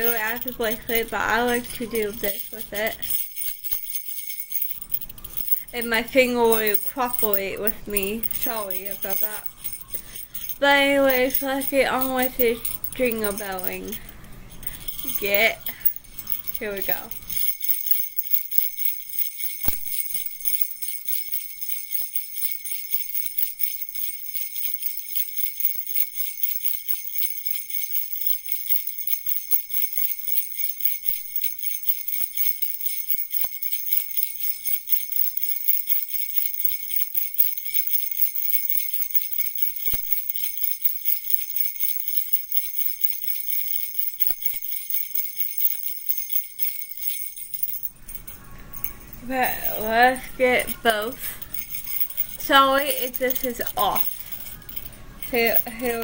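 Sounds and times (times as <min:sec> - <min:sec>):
jingle bells shaken rapidly: 0:00.0 - 0:56.0.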